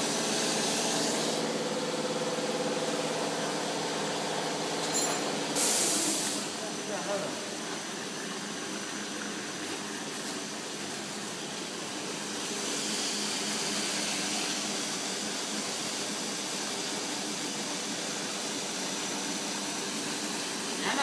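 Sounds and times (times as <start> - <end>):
machine whirring and hissing: 0.0 - 7.0, 11.6 - 21.0.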